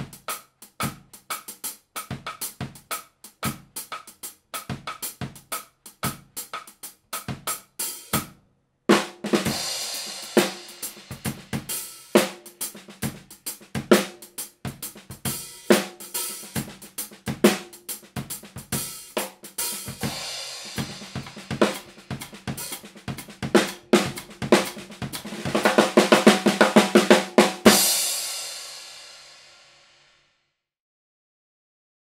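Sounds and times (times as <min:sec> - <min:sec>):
drum kit groove: 0:00.0 - 0:30.0
snare drum strokes: 0:08.9 - 0:29.8.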